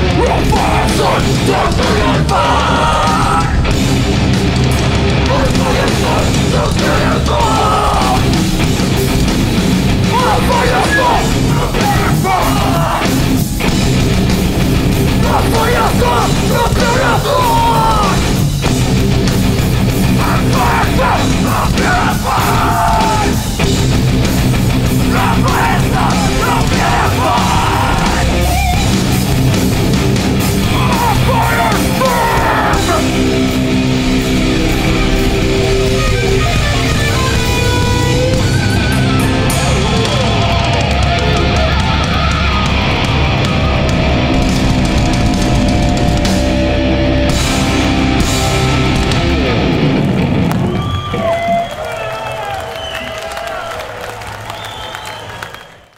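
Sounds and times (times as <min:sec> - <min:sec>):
shouted vocals: 0:00.0 - 0:03.7, 0:05.2 - 0:08.6, 0:10.0 - 0:13.6, 0:15.1 - 0:18.5, 0:20.0 - 0:23.6, 0:24.8 - 0:28.9, 0:30.4 - 0:33.8
metal band playing: 0:00.0 - 0:52.4.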